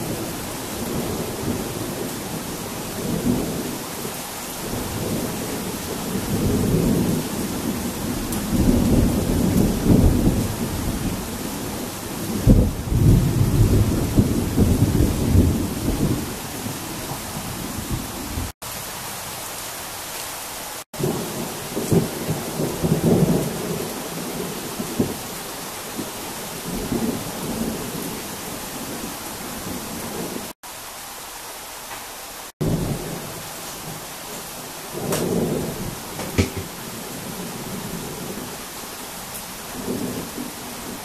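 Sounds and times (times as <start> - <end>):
heavy rain falling: 0.0 - 41.0
thunder rumbling: 4.6 - 18.5, 21.0 - 30.6, 34.8 - 38.6
loud thunder clap: 35.0 - 37.0.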